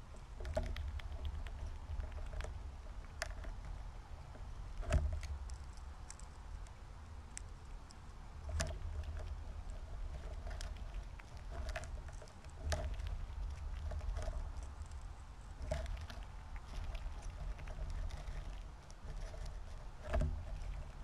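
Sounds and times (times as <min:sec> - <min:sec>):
squirrel rummaging in seed: 0:07.4 - 0:21.0.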